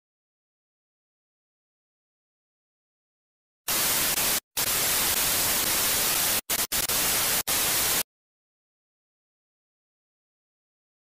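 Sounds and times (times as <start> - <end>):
tv static hiss: 3.7 - 8.1.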